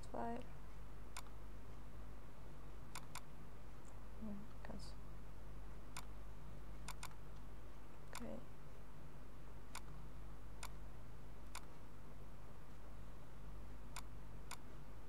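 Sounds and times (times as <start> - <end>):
steady low hum: 0.0 - 15.0
computer mouse clicks: 2.9 - 4.0, 6.9 - 7.4, 9.7 - 10.0, 11.5 - 11.7.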